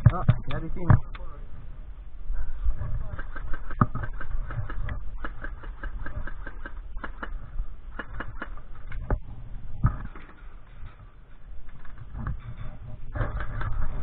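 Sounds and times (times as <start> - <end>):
airsoft shots snapping: 3.1 - 9.0.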